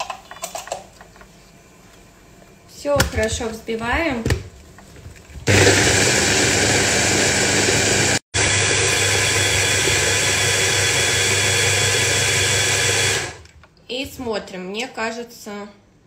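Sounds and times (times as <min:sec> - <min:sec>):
hand blender running: 0:05.5 - 0:13.4.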